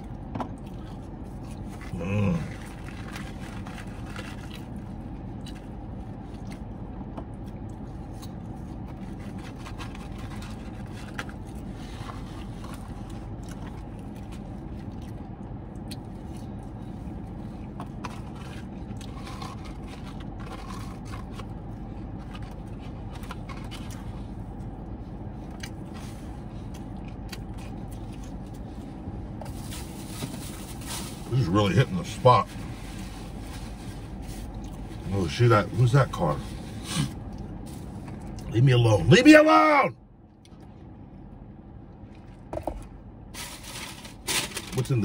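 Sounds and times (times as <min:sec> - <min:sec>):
car engine humming: 0:00.0 - 0:45.0
paper food box rustling: 0:01.6 - 0:05.6, 0:08.6 - 0:14.6, 0:17.9 - 0:24.2.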